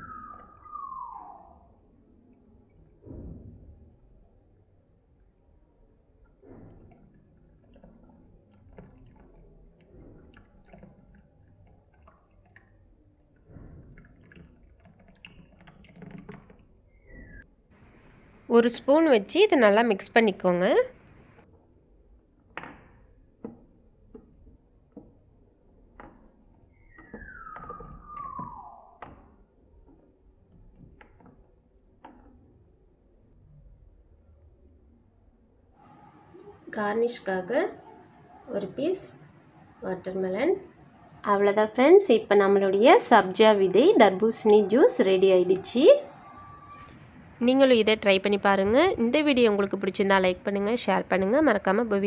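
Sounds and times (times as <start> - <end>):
juice trickling into a glass: 6.7 - 17.4
high descending squeak: 26.9 - 29.0, 44.4 - 47.0.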